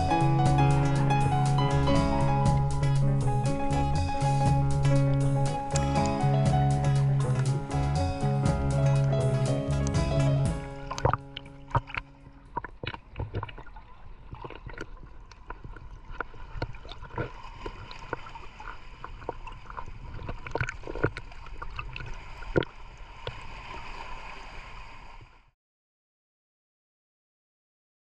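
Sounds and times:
water gurgling: 0.0s - 24.7s
sea waves lapping and splashing: 0.0s - 25.5s.

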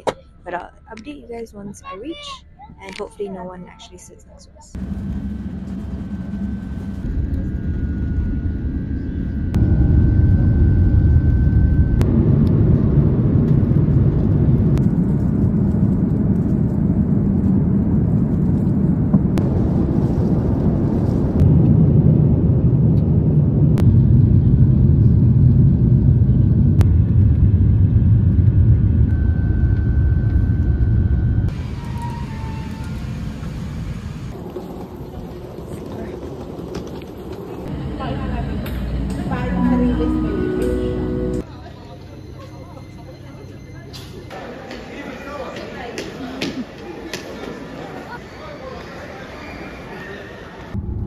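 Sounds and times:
airliner cabin engine rumble: 4.7s - 41.5s
faint high whine: 28.3s - 34.3s.

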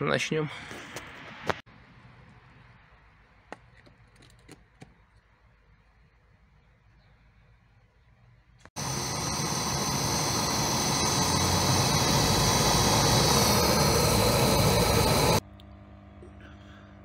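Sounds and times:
gas torch hissing: 8.7s - 15.4s
faint hum: 8.8s - 17.0s.

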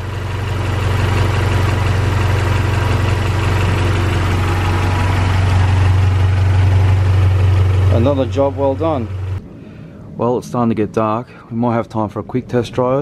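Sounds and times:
car engine idling: 0.0s - 9.9s.

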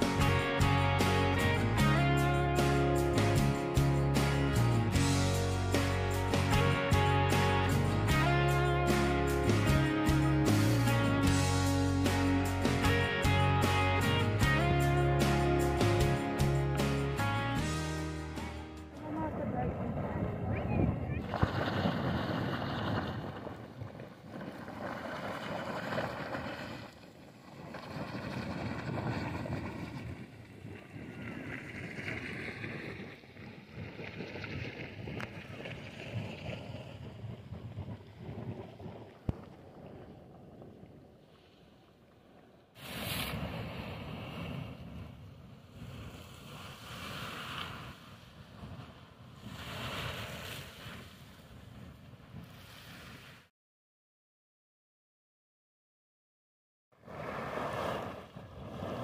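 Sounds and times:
wind buffeting microphone: 18.9s - 26.5s, 27.4s - 41.3s
geyser splashing water and steam: 21.1s - 40.3s, 42.8s - 45.0s, 45.6s - 51.8s.

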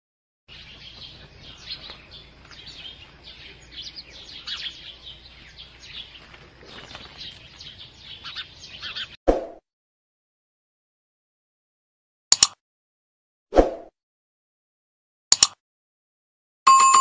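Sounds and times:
birds chirping in chorus: 0.5s - 9.2s.

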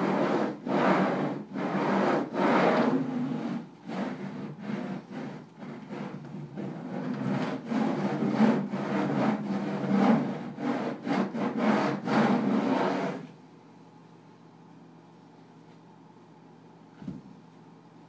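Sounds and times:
pens scraping across paper: 0.0s - 13.3s.

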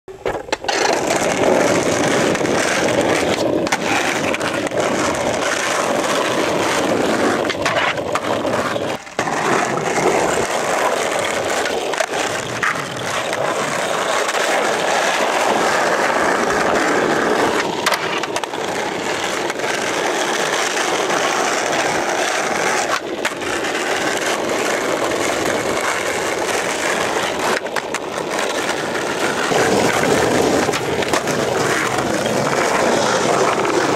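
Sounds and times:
skateboard knocks and clacks: 0.1s - 33.9s
skateboard wheels rolling on asphalt: 0.1s - 33.9s.

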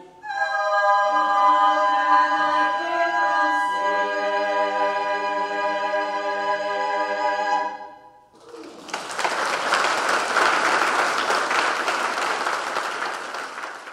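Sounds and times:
women's choir singing: 0.0s - 8.1s
audience applause: 8.4s - 13.9s.

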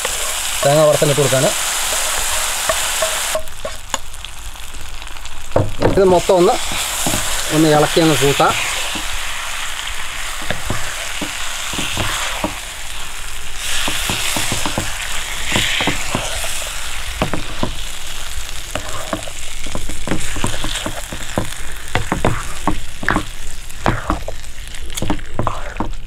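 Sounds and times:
spatula scraping a pan: 0.0s - 3.8s, 13.6s - 26.0s
light sizzle: 0.0s - 26.0s.

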